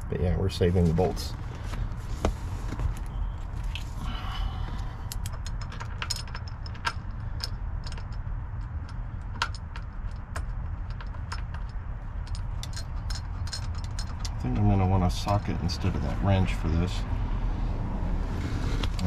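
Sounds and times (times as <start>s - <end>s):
steady low hum: 0.0s - 19.0s
small metal parts clinking: 5.0s - 15.6s.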